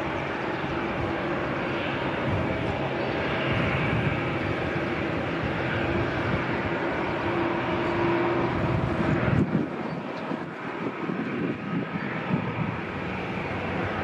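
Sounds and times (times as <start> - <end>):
jet engines rumbling and hissing: 0.0 - 14.0.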